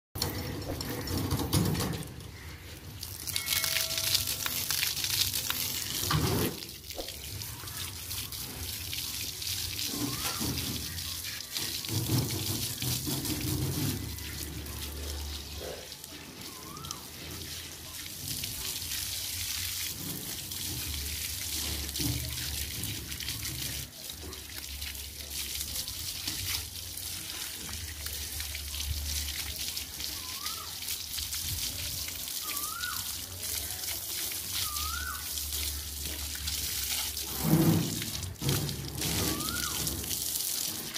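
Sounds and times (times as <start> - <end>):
water spraying from a hose: 0.2 - 40.9.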